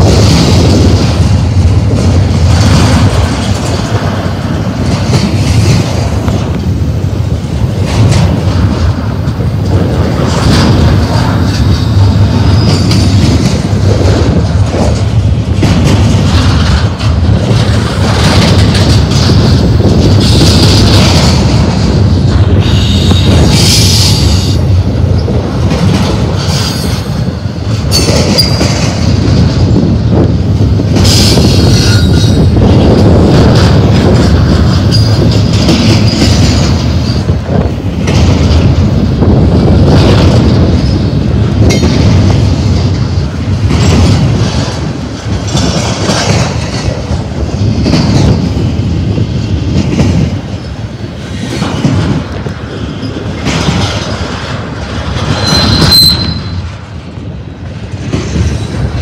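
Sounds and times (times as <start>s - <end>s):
train wheels rumbling on rail: 0.0s - 59.0s
wheel squeals: 55.3s - 56.6s.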